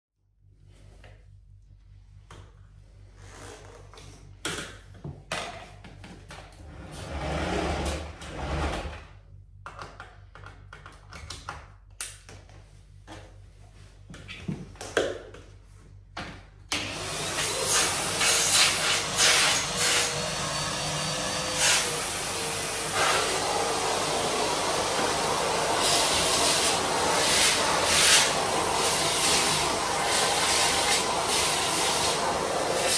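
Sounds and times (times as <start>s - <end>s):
vacuum cleaner running: 6.6s - 9.0s, 16.7s - 32.9s.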